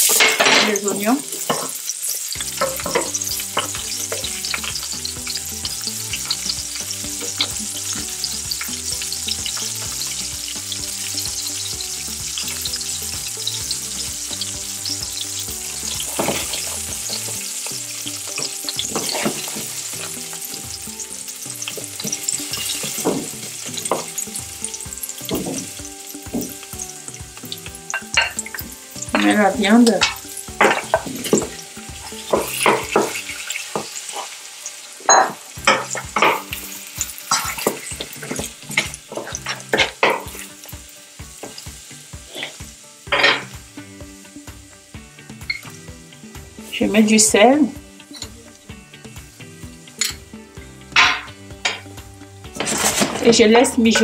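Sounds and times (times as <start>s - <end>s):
onions sizzling in hot oil: 0.0s - 54.0s.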